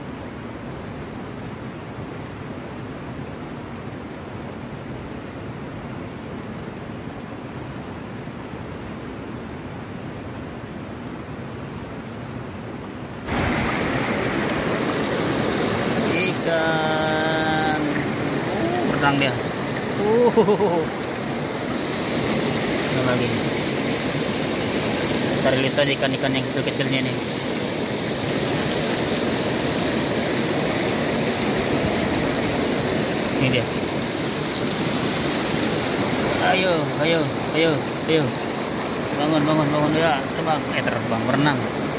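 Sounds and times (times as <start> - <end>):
river water rushing over rocks: 0.0 - 41.9
shallow water streaming: 0.0 - 41.9.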